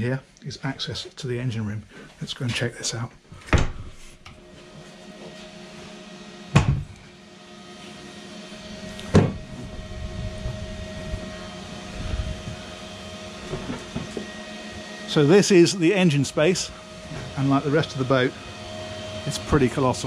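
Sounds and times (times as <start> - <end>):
machinery hum: 0.0 - 20.0
door knocks: 6.6 - 6.9.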